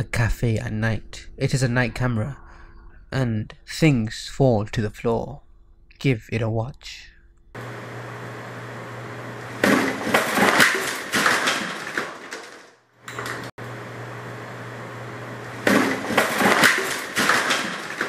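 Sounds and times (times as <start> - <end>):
steady low hum: 0.0 - 10.1
glass breaking and clattering: 9.6 - 12.6, 15.8 - 18.0
bottles and objects crashing: 9.6 - 12.7, 15.6 - 18.0.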